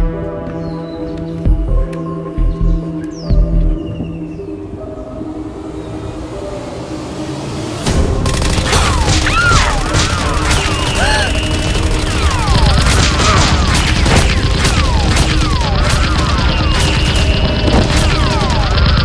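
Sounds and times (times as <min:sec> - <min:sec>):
bass-heavy music: 0:00.0 - 0:19.0
gunfire volleys: 0:08.2 - 0:19.0
swooping laser zaps: 0:08.3 - 0:19.0.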